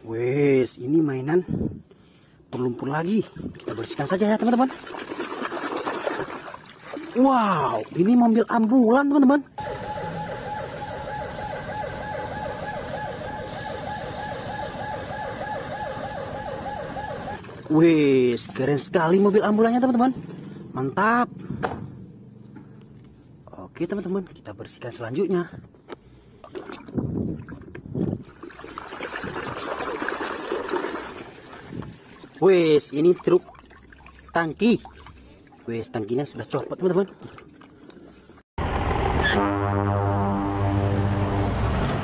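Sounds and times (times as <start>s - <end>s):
water sloshing in a basin: 3.5s - 8.8s, 17.3s - 18.8s, 26.4s - 38.3s
ambulance siren yelping: 9.6s - 17.4s.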